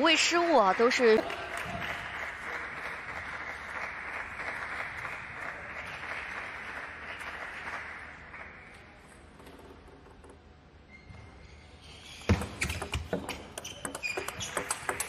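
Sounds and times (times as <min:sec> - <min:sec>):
crowd applause: 0:00.4 - 0:08.8.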